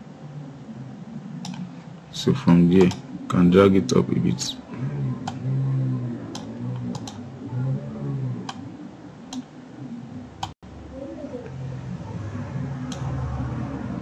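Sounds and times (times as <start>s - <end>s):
faint low hum: 0.0s - 14.0s
computer mouse clicking: 1.4s - 1.7s, 2.7s - 3.1s, 5.2s - 5.4s, 6.3s - 7.2s, 8.4s - 8.7s, 9.3s - 9.5s, 12.9s - 13.2s.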